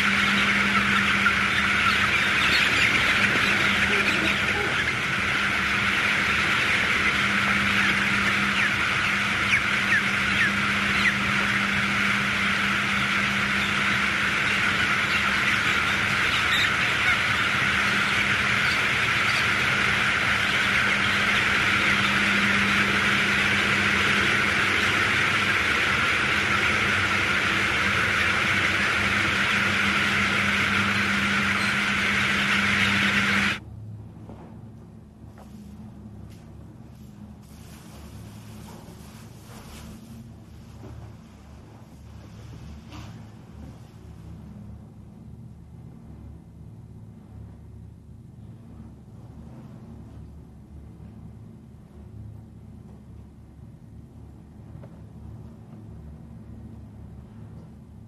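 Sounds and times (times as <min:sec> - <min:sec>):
chicks peeping: 0:00.0 - 0:33.6
steady low hum: 0:00.0 - 0:58.0.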